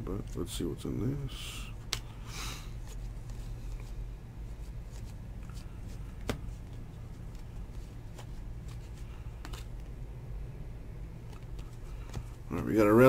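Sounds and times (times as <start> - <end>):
low hum: 0.0 - 13.0
cards flipping and snapping: 1.8 - 2.2, 4.6 - 9.9, 11.2 - 12.4.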